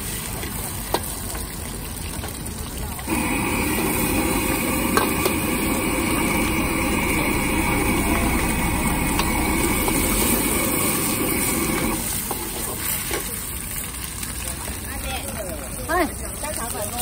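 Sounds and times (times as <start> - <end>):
egg sizzling in hot oil: 0.0 - 17.0
gas burner rushing: 3.1 - 13.4
metal ladle tapping wok: 4.9 - 5.4.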